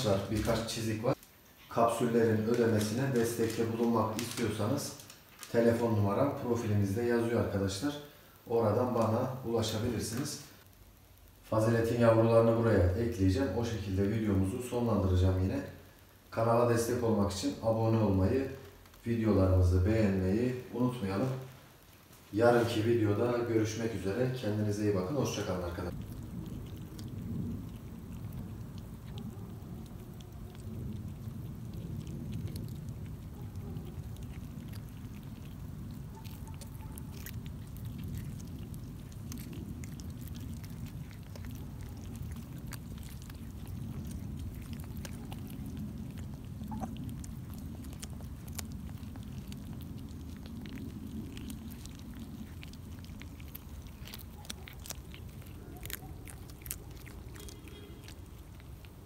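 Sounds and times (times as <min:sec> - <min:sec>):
kittens chewing clicks: 0:02.3 - 0:05.7, 0:18.2 - 0:19.2, 0:21.7 - 0:59.0
steady low rumble: 0:23.9 - 0:57.5.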